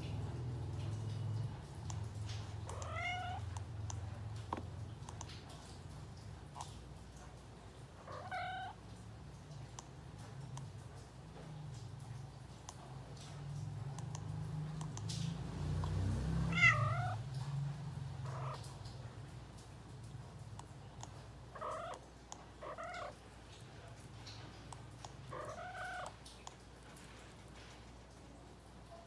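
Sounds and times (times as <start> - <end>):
cat meowing: 2.6 - 3.6, 8.0 - 8.8, 16.3 - 17.2, 18.2 - 18.7, 21.5 - 22.0, 22.6 - 23.2, 25.3 - 26.2.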